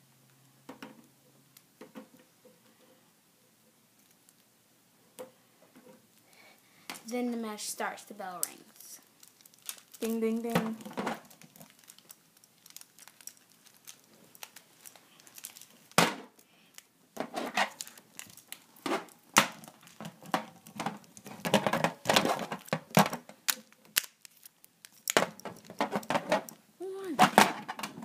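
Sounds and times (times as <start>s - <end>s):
rustling: 5.6s - 28.0s
plastic toy knocks and clatter: 18.8s - 23.3s, 25.1s - 26.5s, 27.2s - 28.0s.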